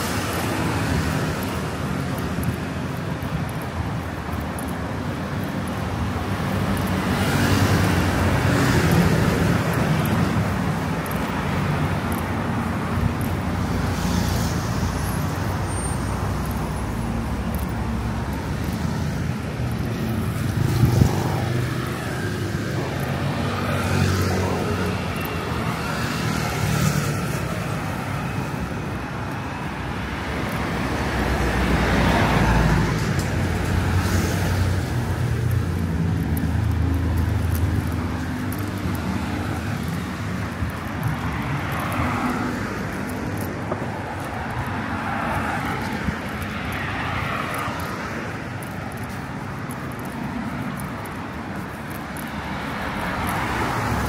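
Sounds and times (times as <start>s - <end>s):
traffic engines running: 0.0s - 54.0s
vehicles passing close by: 0.0s - 54.0s.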